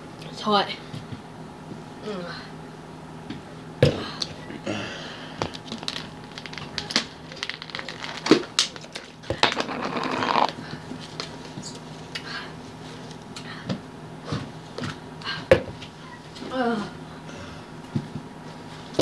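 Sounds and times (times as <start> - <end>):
plastic cup clicking and crinkling: 5.4 - 10.6.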